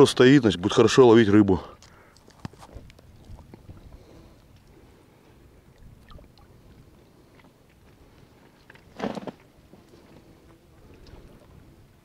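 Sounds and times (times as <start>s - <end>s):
fishing net ticks and rustles: 1.8s - 3.7s.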